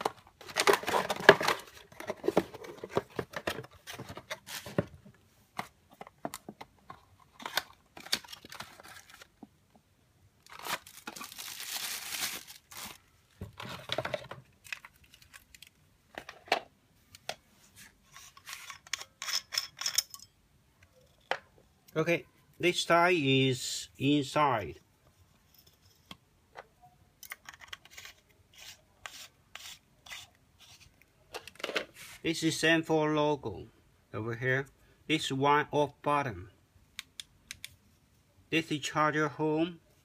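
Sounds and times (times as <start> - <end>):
cardboard packaging rustling and tearing: 0.0 - 5.0, 7.3 - 9.4, 10.4 - 15.8.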